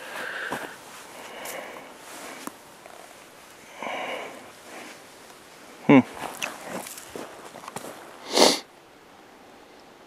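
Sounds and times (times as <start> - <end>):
breathing and sniffing: 0.0 - 5.1, 8.2 - 8.7.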